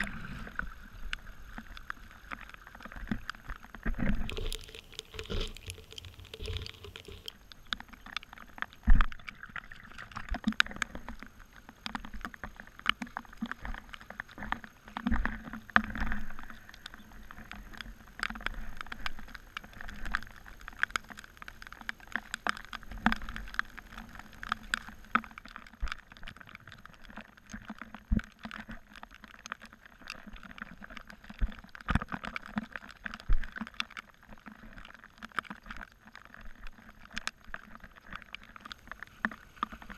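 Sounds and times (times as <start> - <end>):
water flowing and gurgling: 0.0 - 10.7
sharp drips and splashes: 1.6 - 10.5.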